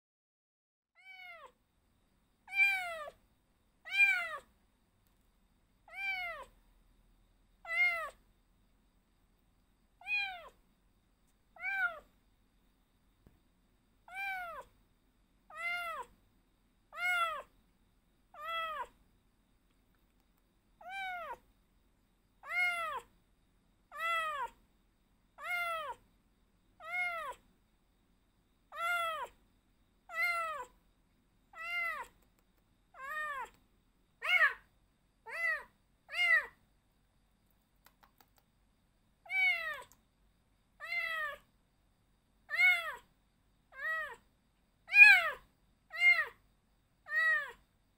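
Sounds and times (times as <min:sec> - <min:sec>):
kitten meowing: 0:01.0 - 0:01.6, 0:02.5 - 0:03.2, 0:03.8 - 0:04.5, 0:05.9 - 0:06.6, 0:07.6 - 0:08.2, 0:10.0 - 0:10.6, 0:11.6 - 0:12.1, 0:14.1 - 0:14.7, 0:15.5 - 0:16.1, 0:16.9 - 0:17.5, 0:18.4 - 0:19.0, 0:20.8 - 0:21.4, 0:22.4 - 0:23.1, 0:23.9 - 0:24.6, 0:25.4 - 0:26.0, 0:26.8 - 0:27.4, 0:28.7 - 0:29.4, 0:30.1 - 0:30.7, 0:31.6 - 0:32.2, 0:33.0 - 0:33.6, 0:34.2 - 0:34.6, 0:39.3 - 0:40.0, 0:40.8 - 0:41.4, 0:42.5 - 0:43.0, 0:43.7 - 0:44.2, 0:44.9 - 0:46.4, 0:47.1 - 0:47.6.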